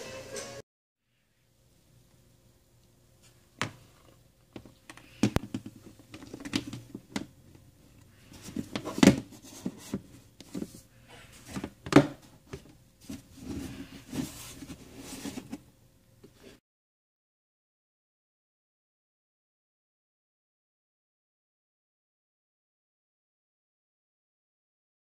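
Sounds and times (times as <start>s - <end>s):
plastic bins and toys handled: 3.2s - 16.6s.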